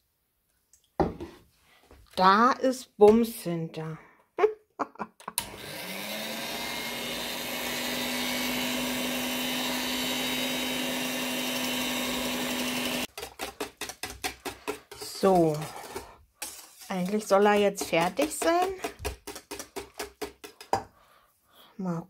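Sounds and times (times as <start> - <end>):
electric hand mixer running: 5.4 - 13.1.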